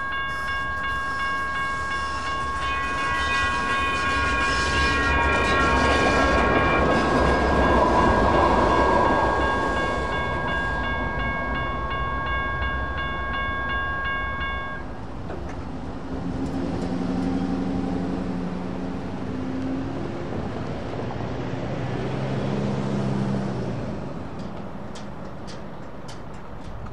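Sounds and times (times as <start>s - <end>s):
crossing bells ringing: 0.0s - 21.0s
train wheels on rails: 0.0s - 26.9s.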